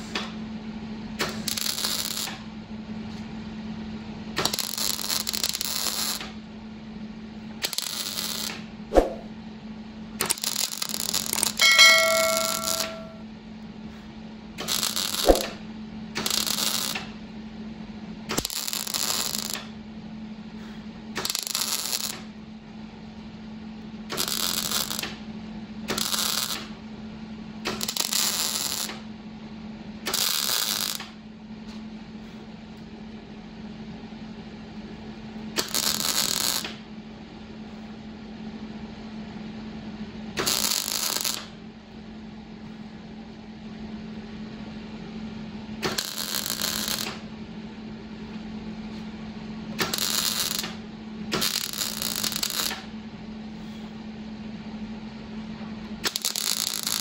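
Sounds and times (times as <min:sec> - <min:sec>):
metal tool clinking: 0:11.6 - 0:13.2.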